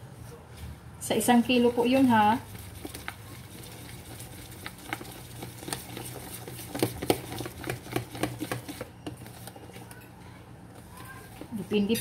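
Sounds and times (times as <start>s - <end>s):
whisk stirring thick batter: 1.2s - 10.0s, 10.7s - 12.0s.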